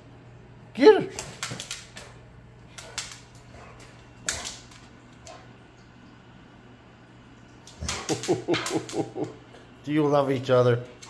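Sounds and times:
paws clicking on wooden floor: 1.1 - 5.5.

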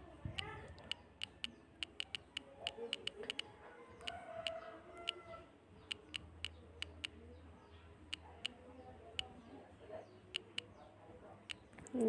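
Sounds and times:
faint low hum: 0.0 - 12.0
smartphone keyboard taps: 0.4 - 3.4.

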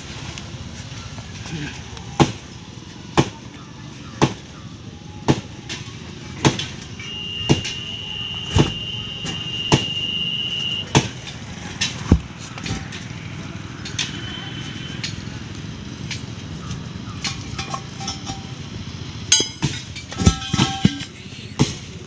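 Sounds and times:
sharp metal knocks: 17.2 - 21.9.

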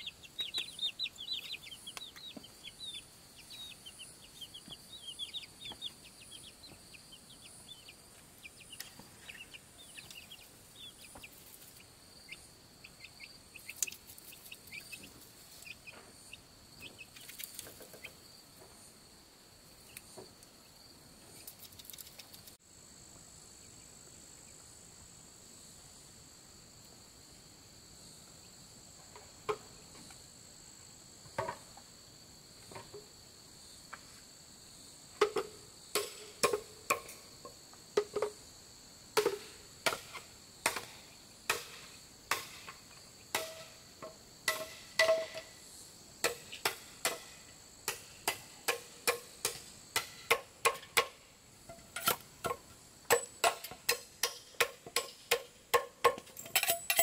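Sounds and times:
chorus of insects: 0.0 - 57.0
sharp knocks of hand tool: 39.2 - 45.4, 46.2 - 51.2, 52.0 - 56.2.

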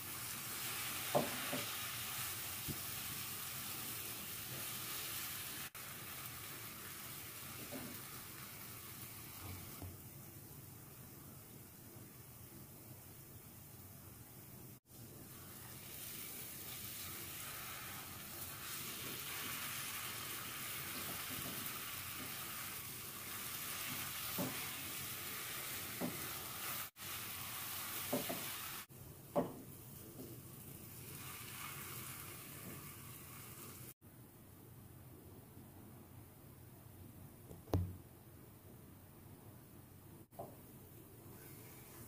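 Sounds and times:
nuts sizzling in a pan: 0.0 - 11.5, 14.9 - 34.0
spatula scraping and knocking pan: 23.7 - 25.0, 25.7 - 26.9, 28.0 - 28.6.

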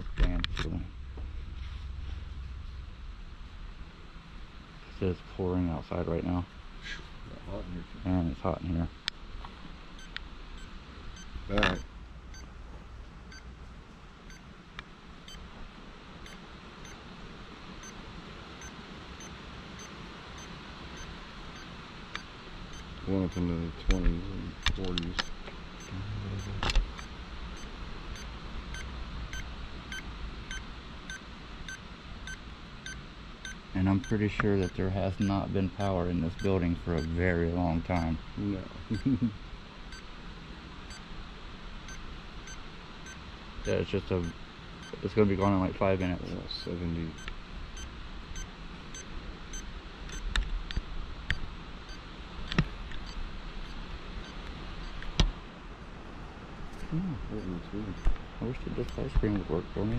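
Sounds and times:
background hiss: 0.0 - 59.9.

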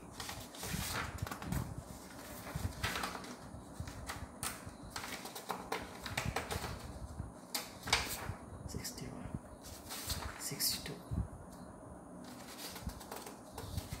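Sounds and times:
paper sheets flicking: 0.2 - 6.9, 12.3 - 14.0.

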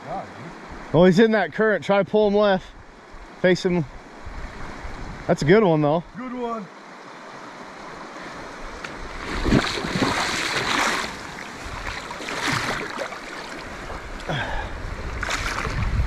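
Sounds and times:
river rushing: 0.0 - 16.0
water splashing around waders: 8.0 - 16.0.

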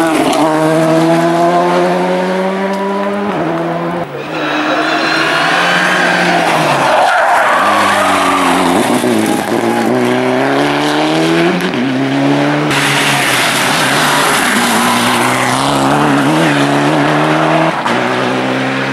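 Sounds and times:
rally car engines revving: 0.0 - 18.9
tyres squealing: 4.1 - 9.9.

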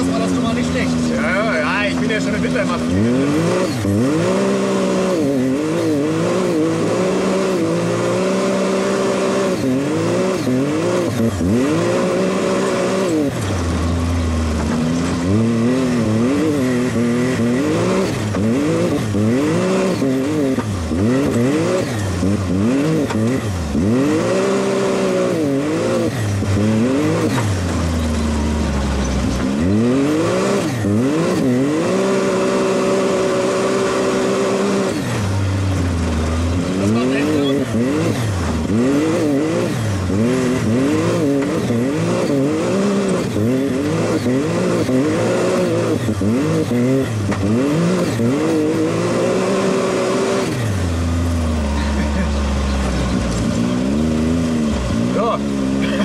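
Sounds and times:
turbocharged engine revving: 0.0 - 56.0.

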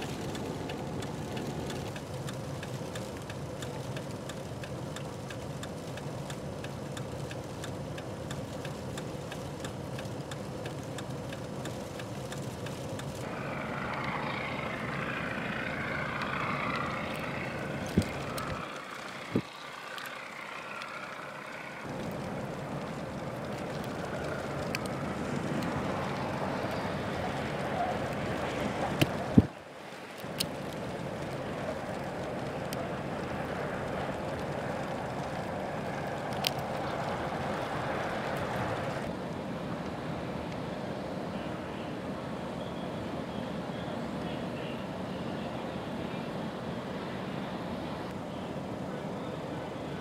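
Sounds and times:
sharp clicks: 0.0 - 13.3
motor vehicle rushing hiss: 0.0 - 42.6.

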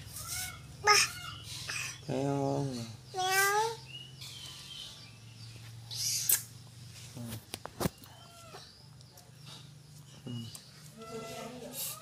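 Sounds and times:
kittens squeaking: 0.0 - 2.0.

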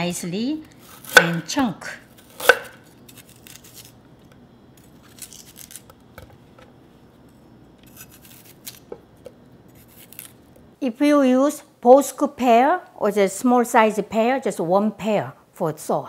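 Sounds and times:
knife slicing pear: 0.8 - 4.0, 7.8 - 10.4.

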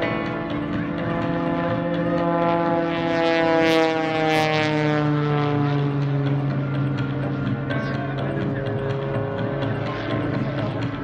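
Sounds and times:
propeller plane engine droning: 0.0 - 11.0.

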